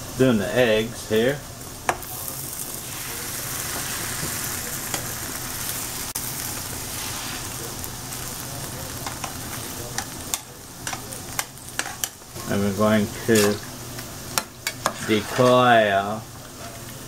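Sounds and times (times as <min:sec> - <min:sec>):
potatoes sizzling in hot oil: 0:00.0 - 0:17.0
spatula clicks in a skillet: 0:09.0 - 0:12.2.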